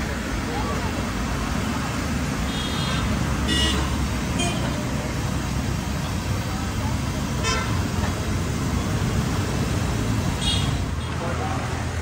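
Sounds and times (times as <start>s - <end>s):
roadside traffic noise: 0.0s - 12.0s
vehicle horn toots: 2.5s - 4.6s.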